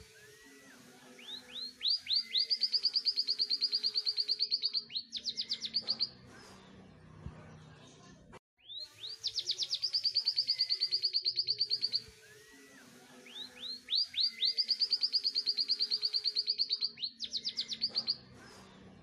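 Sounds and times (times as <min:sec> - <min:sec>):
canary singing trills: 0:01.2 - 0:06.2, 0:08.6 - 0:18.3.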